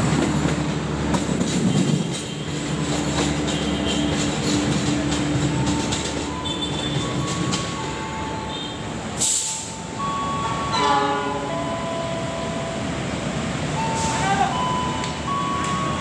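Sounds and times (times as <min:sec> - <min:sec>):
train wheels rumbling on rail: 0:00.0 - 0:16.0
burst of hiss: 0:09.2 - 0:09.8.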